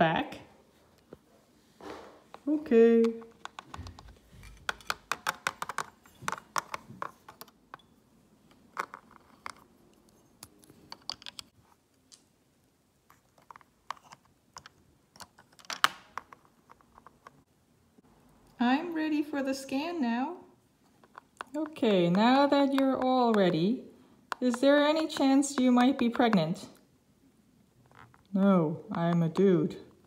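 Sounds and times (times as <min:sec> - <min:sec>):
plastic toy bricks clicking: 0:03.1 - 0:07.8.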